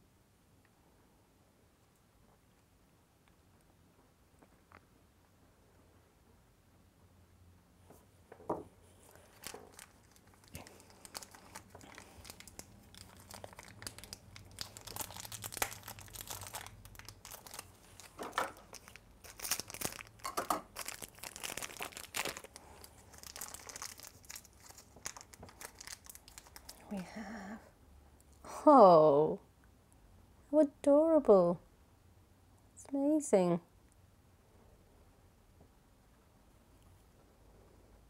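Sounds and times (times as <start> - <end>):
plastic packet crinkling and tearing: 9.1 - 26.9.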